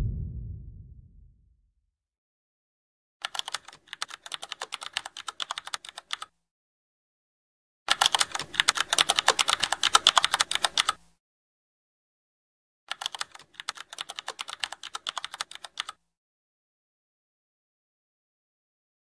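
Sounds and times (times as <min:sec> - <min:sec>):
keyboard typing clicks: 0:03.2 - 0:06.3, 0:07.9 - 0:11.0, 0:12.9 - 0:16.0.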